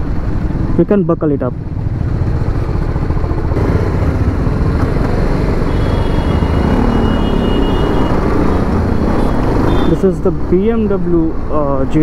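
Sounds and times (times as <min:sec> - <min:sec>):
motorcycle engine running: 0:01.6 - 0:09.3.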